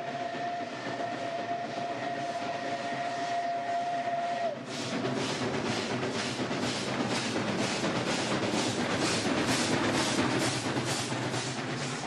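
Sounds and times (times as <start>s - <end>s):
steam locomotive whistle: 0.0s - 5.9s
steam locomotive exhaust chuffs: 0.0s - 12.0s.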